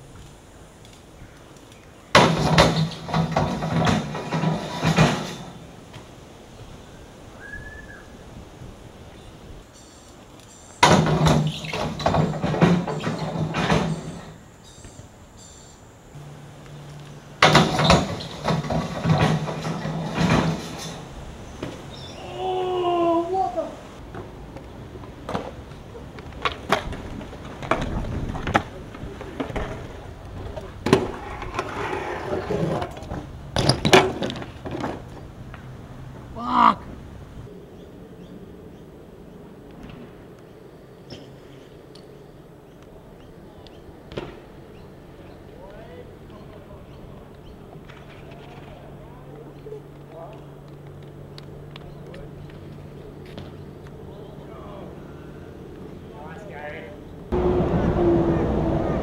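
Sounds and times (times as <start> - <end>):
bike tyres rolling on ramp: 0.0 - 7.4, 8.0 - 15.2, 16.1 - 37.5, 38.2 - 41.4, 42.0 - 55.0
birds chirping: 0.3 - 4.6, 5.6 - 20.0, 21.0 - 25.0, 36.2 - 57.4
bike pegs grinding metal rail: 2.1 - 5.8, 10.8 - 14.4, 17.4 - 22.1, 30.8 - 35.1
steady low hum: 14.2 - 26.3.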